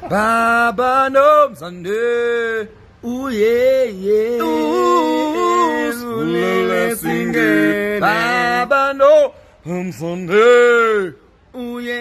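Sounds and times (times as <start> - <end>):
two men singing unaccompanied: 0.0 - 12.0.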